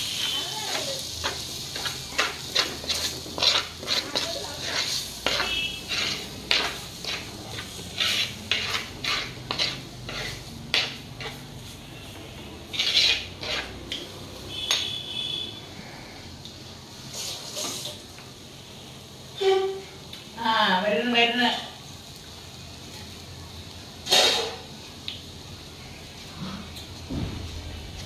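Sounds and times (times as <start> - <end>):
light sizzle: 0.0 - 28.0
steel spoon scraping clay pot: 0.2 - 11.5, 12.7 - 15.0.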